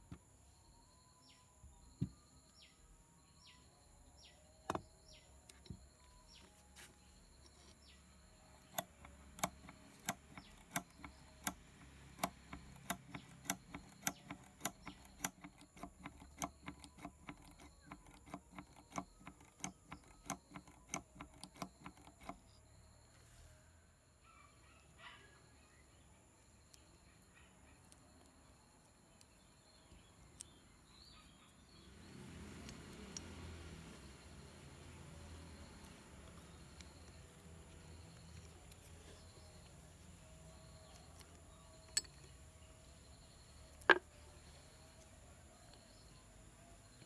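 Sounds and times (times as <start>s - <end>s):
faint bird chirps: 0.0s - 11.6s, 12.2s - 32.1s
oil can lever clicking: 8.7s - 22.4s.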